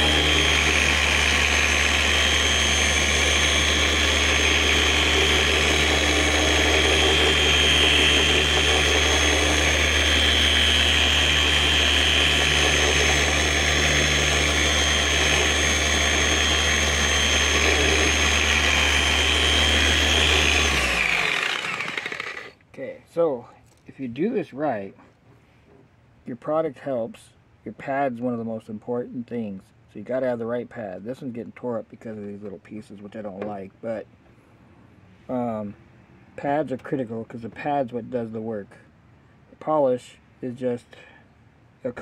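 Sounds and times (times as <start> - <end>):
electric polisher whining: 0.0 - 22.5.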